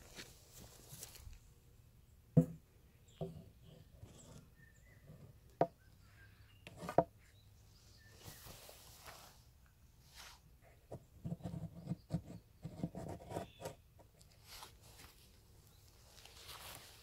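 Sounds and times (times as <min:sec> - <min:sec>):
footsteps in dry grass: 0:00.0 - 0:01.5, 0:14.4 - 0:17.0
grass rustling: 0:00.0 - 0:01.5, 0:07.8 - 0:10.5, 0:14.3 - 0:17.0.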